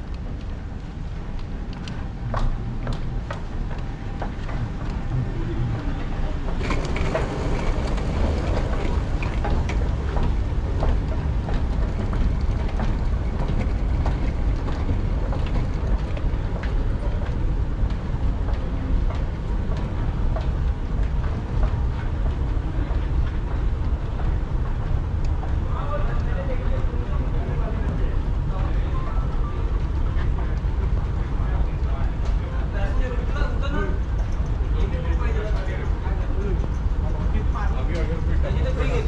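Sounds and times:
moving walkway rumbling: 0.0s - 39.0s
rolling luggage clicks: 6.4s - 24.2s.

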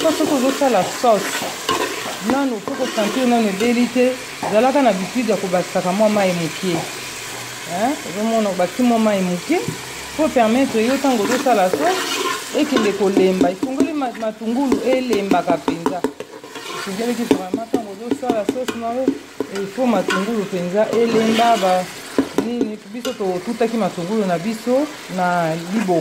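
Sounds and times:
metal spoon scraping pot: 0.0s - 3.8s, 10.6s - 15.0s, 16.0s - 17.3s, 18.7s - 22.4s
sauce frying and sizzling: 0.0s - 26.0s.

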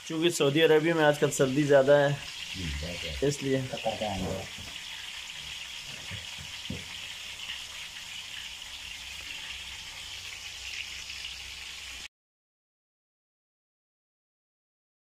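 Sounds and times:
fish sizzling in hot oil: 0.0s - 12.1s
soft knocks: 5.9s - 6.9s.

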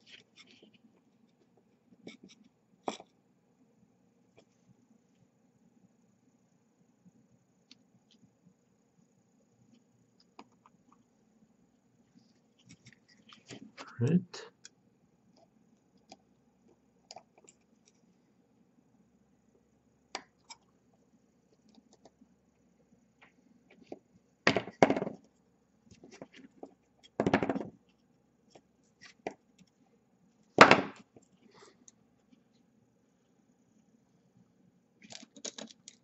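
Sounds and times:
small clicks and handling noises: 12.6s - 13.6s, 14.6s - 18.1s, 21.5s - 22.2s, 25.1s - 29.8s, 35.0s - 36.0s.

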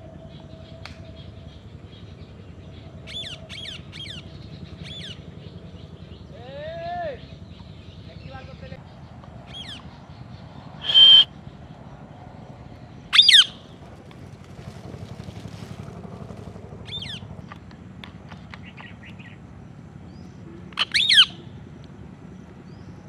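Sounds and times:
parakeet giving loud high calls: 10.8s - 11.3s, 13.1s - 13.6s, 20.8s - 21.5s.

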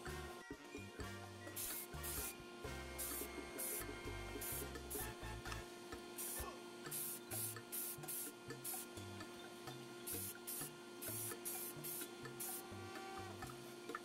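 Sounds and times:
music with stepping bass line: 0.0s - 13.8s
spray paint hissing: 1.6s - 2.4s, 3.0s - 5.2s, 6.2s - 8.9s, 10.1s - 12.8s.

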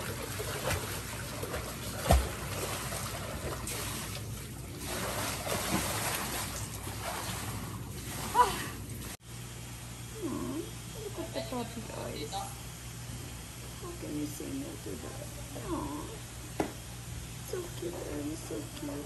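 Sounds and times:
pool water splashing: 0.0s - 9.2s.

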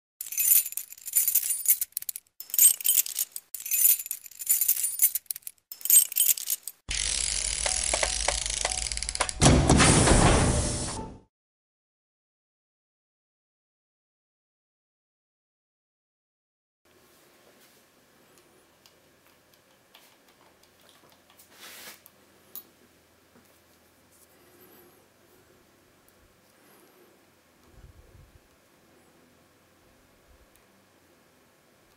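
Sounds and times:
metallic ticks of lock-picking tools: 0.2s - 6.8s
bright metallic jingling: 0.2s - 9.0s.

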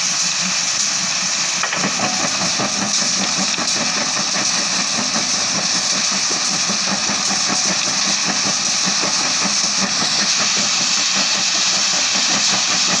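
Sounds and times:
crushing machine drone: 1.6s - 13.0s.

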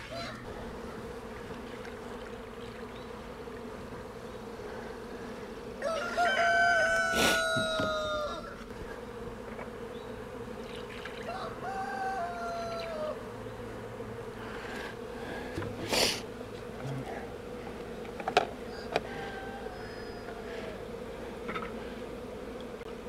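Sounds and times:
rooster crowing: 0.0s - 0.5s, 5.8s - 8.6s, 11.2s - 13.3s, 18.6s - 20.8s
honeybees humming: 0.0s - 23.0s.

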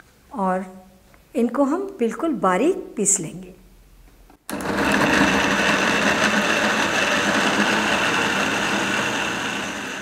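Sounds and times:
mixer grinder motor whine: 4.5s - 10.0s.

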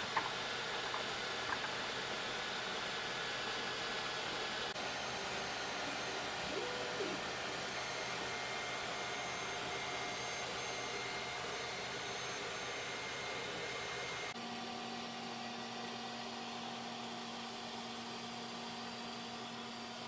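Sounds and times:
steady low hum: 4.7s - 12.4s.

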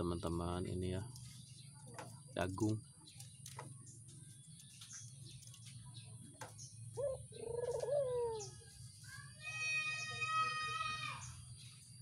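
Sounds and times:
dove cooing: 6.9s - 8.6s.

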